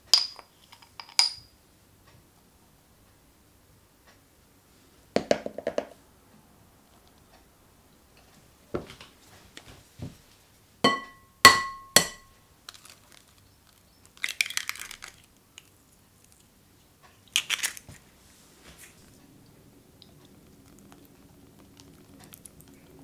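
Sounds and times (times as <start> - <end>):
taps on a glass bowl: 10.9 - 12.3
eggshell crackling: 11.5 - 18.0, 18.8 - 23.0.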